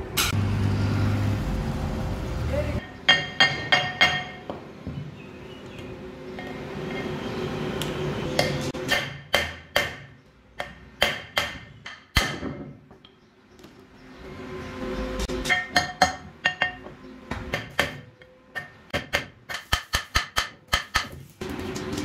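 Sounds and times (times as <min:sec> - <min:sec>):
hammer striking steel: 0:02.8 - 0:04.6, 0:07.8 - 0:12.6, 0:15.2 - 0:21.2.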